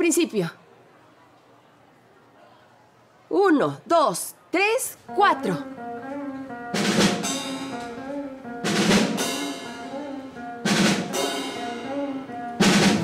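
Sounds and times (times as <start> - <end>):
held keyboard notes: 5.0 - 13.0
cymbal crashes: 8.7 - 9.9, 10.7 - 12.0
bass drum strikes: 12.6 - 13.0.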